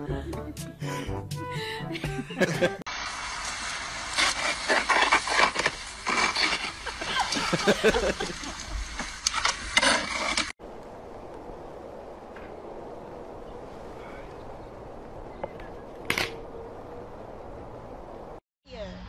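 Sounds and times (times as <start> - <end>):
shovel scraping snow: 3.8 - 10.6.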